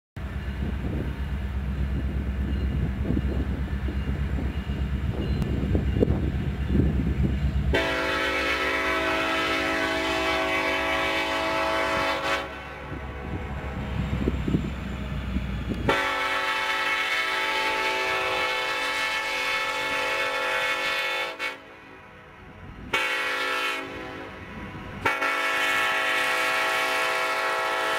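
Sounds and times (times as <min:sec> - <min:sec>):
low train rumble: 0:00.2 - 0:27.9
locomotive horn blast: 0:07.7 - 0:13.5, 0:15.8 - 0:22.0, 0:22.8 - 0:27.9.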